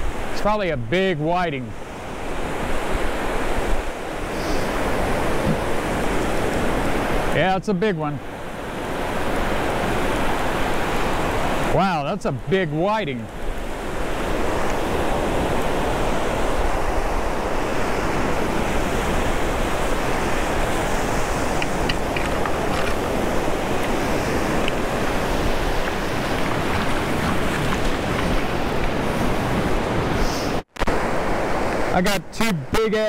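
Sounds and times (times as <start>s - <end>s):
ocean surf breaking: 0.0s - 33.0s
wind rumbling on microphone: 1.6s - 7.4s, 13.2s - 31.9s.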